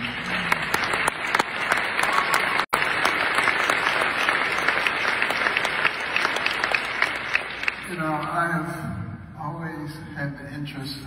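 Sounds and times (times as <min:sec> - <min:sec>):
large audience applauding: 0:00.0 - 0:08.3.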